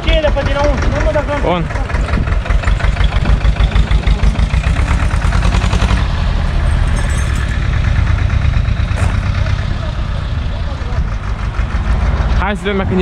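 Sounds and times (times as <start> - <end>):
tractor diesel engine idling: 0.0 - 13.0.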